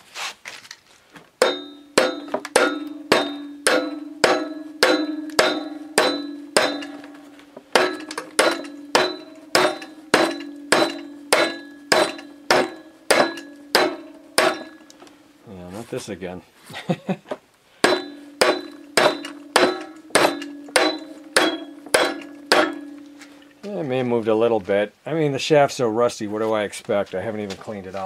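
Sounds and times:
metal ringing: 1.4s - 15.0s, 17.8s - 23.6s
wooden mallet hammering metal: 1.4s - 15.0s, 17.8s - 23.6s.

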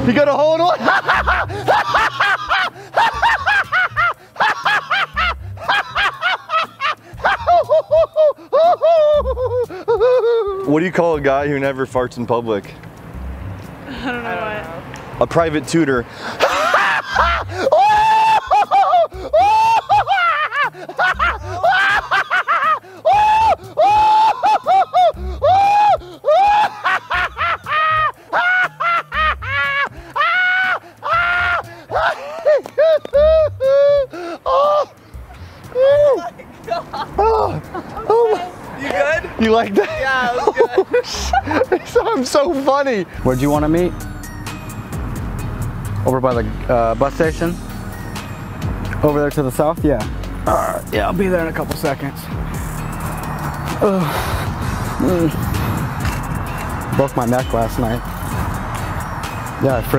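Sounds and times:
people laughing: 0.5s - 10.7s, 16.3s - 34.9s, 35.8s - 42.7s.

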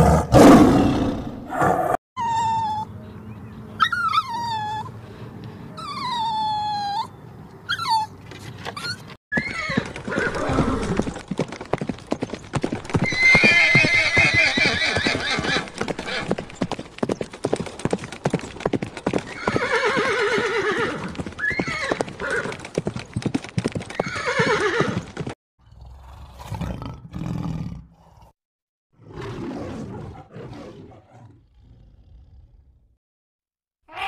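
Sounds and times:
horse hooves clip-clopping: 8.3s - 25.4s
horse neighing: 13.0s - 16.5s, 19.3s - 22.5s, 24.0s - 25.0s.

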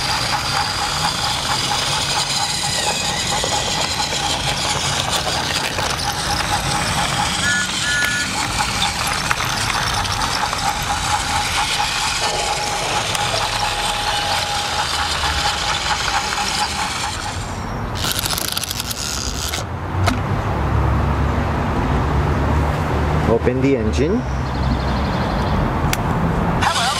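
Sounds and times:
rapid clicks: 0.0s - 19.6s
toy train motor whine: 0.0s - 19.6s, 26.6s - 26.9s
wheels rattling on track: 0.0s - 20.8s, 26.4s - 26.9s.

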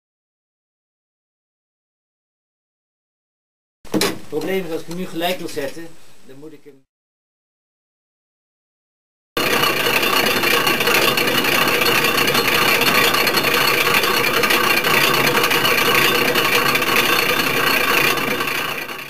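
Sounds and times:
clockwork gears rattling: 9.4s - 19.0s.

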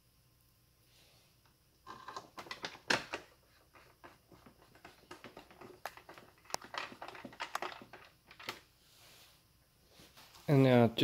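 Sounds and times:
plastic parts clicking and tapping: 1.9s - 8.6s.

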